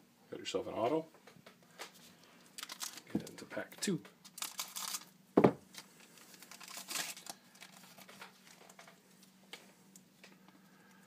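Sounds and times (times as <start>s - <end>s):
faint steady hum: 0.0s - 11.0s
foil wrapper crinkling: 1.9s - 9.4s
scissors cutting foil: 4.3s - 5.1s, 6.5s - 8.1s.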